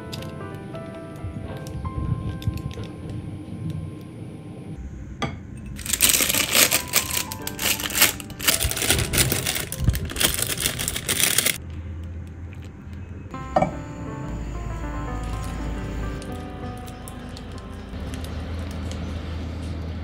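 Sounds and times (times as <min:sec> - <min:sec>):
background music: 0:00.0 - 0:03.2, 0:05.8 - 0:12.0, 0:13.4 - 0:19.6
plastic bag crinkling: 0:05.8 - 0:11.6.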